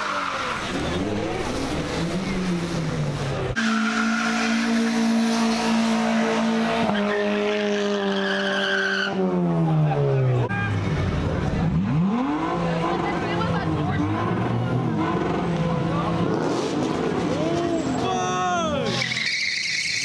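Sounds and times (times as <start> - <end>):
car engine revving: 0.0 - 18.0
tyres squealing: 17.6 - 20.0.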